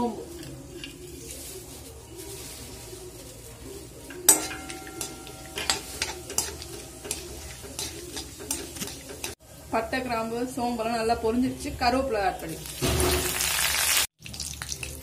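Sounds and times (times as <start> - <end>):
steel spoon scraping pan: 0.0 - 2.7, 3.6 - 9.4
spices sizzling in hot oil: 0.0 - 15.0
spoon clinking on pan: 4.1 - 9.4.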